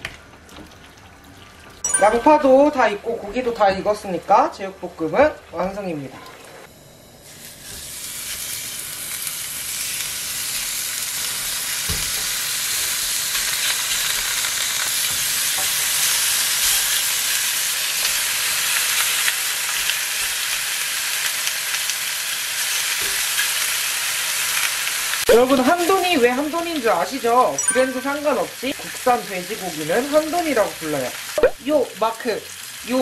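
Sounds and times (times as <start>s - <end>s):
meat sizzling on a grill pan: 7.2s - 33.0s.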